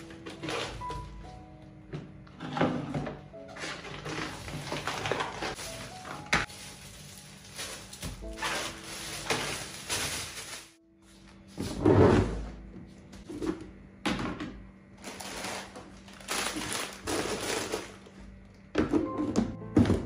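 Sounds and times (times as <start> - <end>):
plastic bags rustling: 0.0 - 1.2, 3.0 - 11.8, 15.0 - 18.6.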